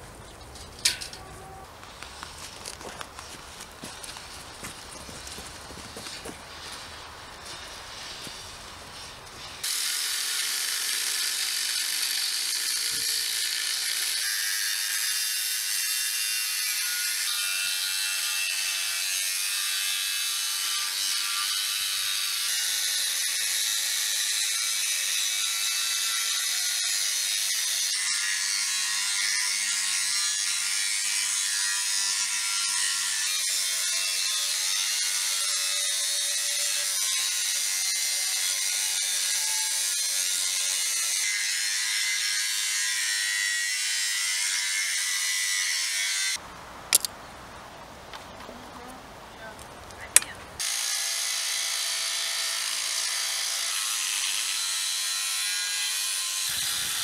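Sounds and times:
angle grinder cutting steel pipe: 9.4s - 46.4s, 50.6s - 57.0s.

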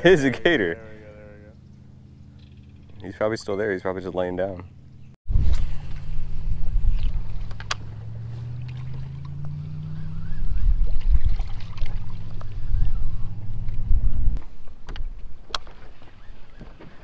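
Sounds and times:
boat motor humming: 0.0s - 17.0s.

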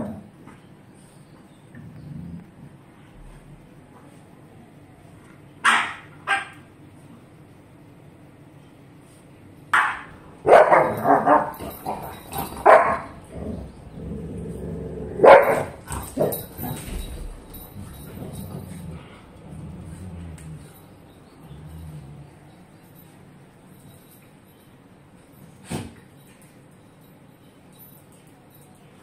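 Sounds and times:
dogs barking in play: 5.6s - 6.8s, 9.7s - 22.8s.

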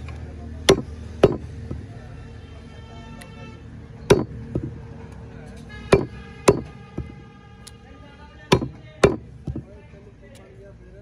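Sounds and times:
cleaver chopping meat on wooden block: 0.6s - 1.9s, 4.0s - 4.8s, 5.9s - 7.2s, 8.5s - 9.7s.

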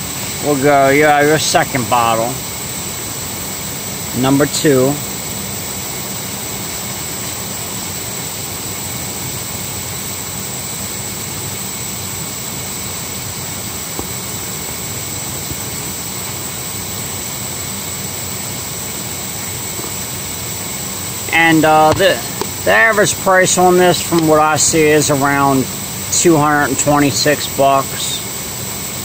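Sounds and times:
low hum: 0.0s - 28.4s
machine rushing noise: 11.8s - 26.6s.

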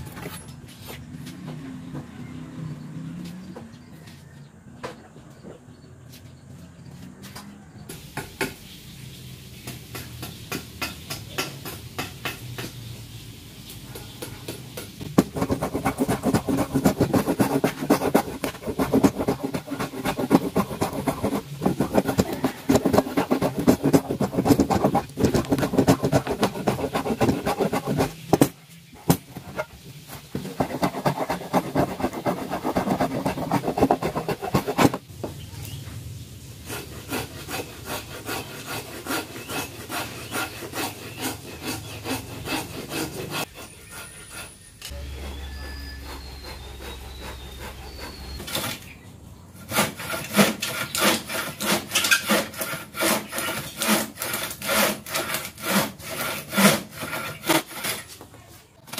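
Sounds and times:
hand plane scraping wood: 15.0s - 35.0s, 36.6s - 48.9s, 49.6s - 58.4s.

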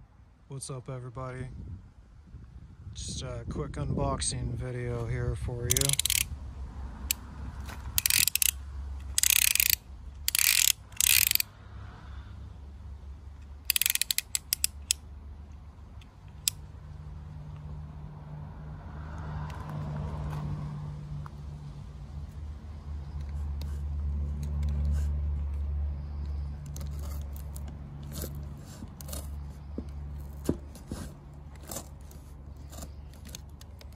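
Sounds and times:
utility knife blade clicking: 5.7s - 6.3s, 8.0s - 11.5s, 13.7s - 15.0s.

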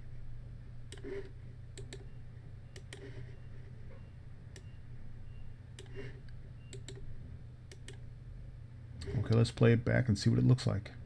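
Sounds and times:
low steady hum: 0.0s - 11.0s
computer mouse clicking: 0.9s - 2.1s, 2.7s - 3.2s, 5.8s - 7.0s, 7.7s - 8.0s.

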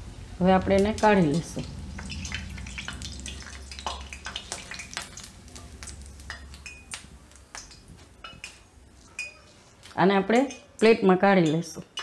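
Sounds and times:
hot oil sizzling and crackling: 0.0s - 10.6s.

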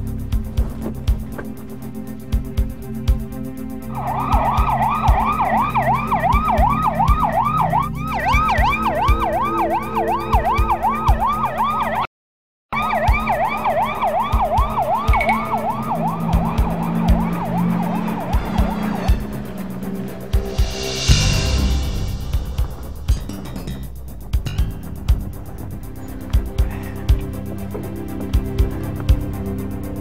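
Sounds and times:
background music with low beat: 0.0s - 12.0s, 12.8s - 30.0s
police siren yelping: 3.9s - 12.1s, 12.7s - 20.5s.

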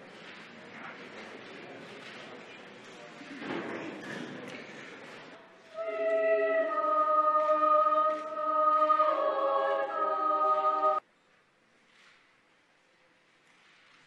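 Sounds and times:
girls' choir singing held chords: 5.8s - 11.0s.

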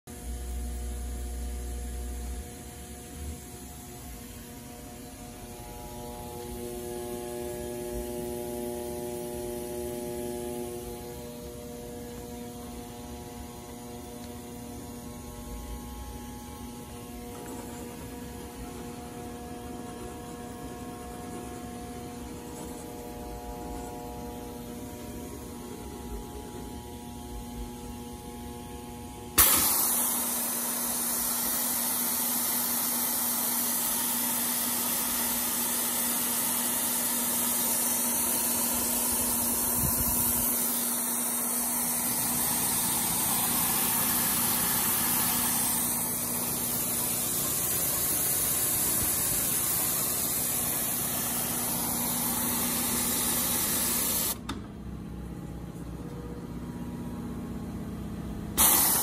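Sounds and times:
machine hum: 0.1s - 59.0s
rushing air hiss: 29.4s - 54.4s, 58.6s - 59.0s.

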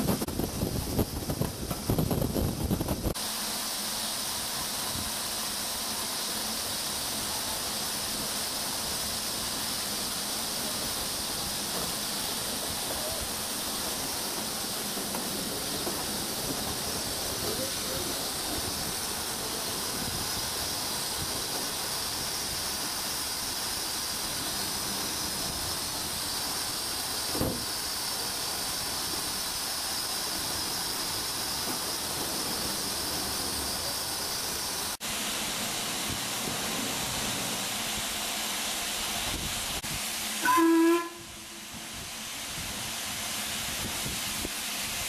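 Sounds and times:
steam hissing: 0.0s - 45.0s.

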